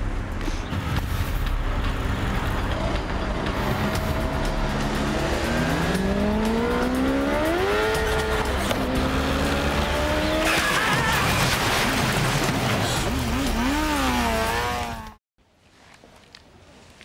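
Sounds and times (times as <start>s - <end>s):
street traffic noise: 0.0s - 17.0s
motorbike engine accelerating: 2.1s - 10.4s.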